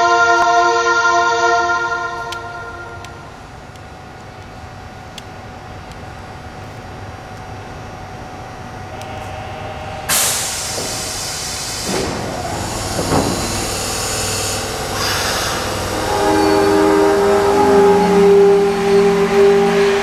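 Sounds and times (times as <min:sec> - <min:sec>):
train motor whine: 0:08.9 - 0:20.0
train doors closing hiss: 0:09.0 - 0:18.7.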